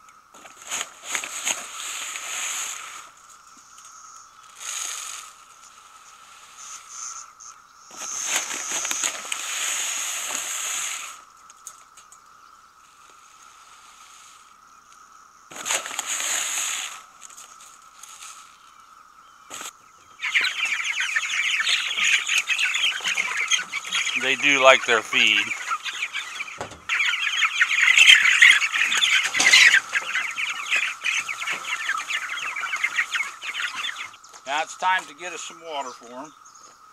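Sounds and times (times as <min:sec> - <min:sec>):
chickens peeping and squawking: 0:00.4 - 0:14.9, 0:15.5 - 0:36.8
grain rustling and pouring: 0:00.5 - 0:03.1, 0:08.0 - 0:11.2, 0:15.5 - 0:18.6.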